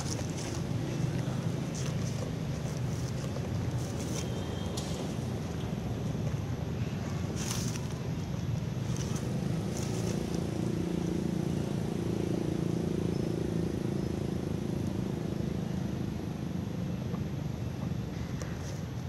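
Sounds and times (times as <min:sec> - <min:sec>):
engine running low rumble: 0:00.0 - 0:19.0.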